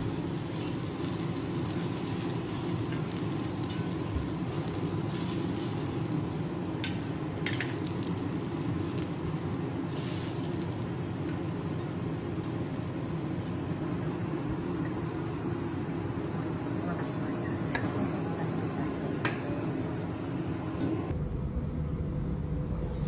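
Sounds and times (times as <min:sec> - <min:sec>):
steak sizzling on griddle: 0:00.0 - 0:11.7
metal spatula scraping and clinking: 0:00.5 - 0:01.2, 0:02.5 - 0:04.1.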